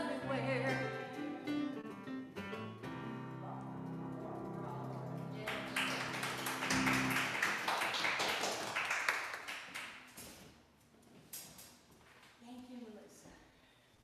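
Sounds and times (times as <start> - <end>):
electric keyboard chord: 0.0 - 7.4
audience applause: 5.4 - 10.0.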